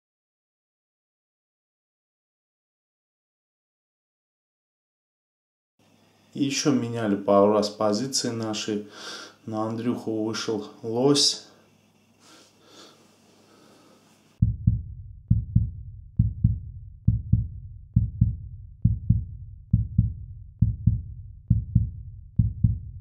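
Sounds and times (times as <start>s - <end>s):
heartbeat double thump: 14.4s - 23.0s.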